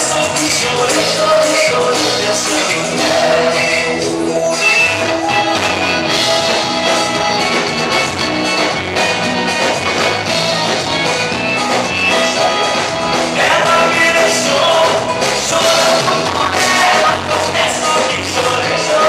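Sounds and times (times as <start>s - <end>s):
live accordion band music: 0.0s - 19.0s.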